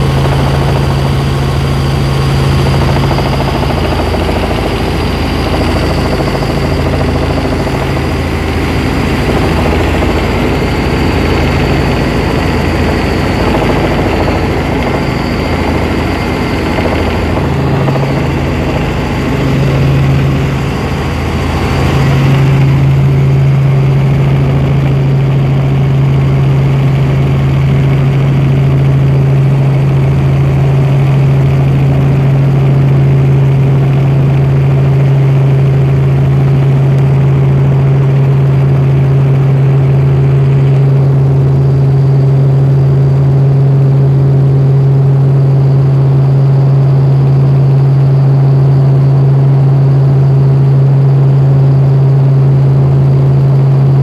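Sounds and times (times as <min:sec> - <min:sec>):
low throb: 0:00.0 - 0:33.0
helicopter engine and rotor drone: 0:00.0 - 0:54.0.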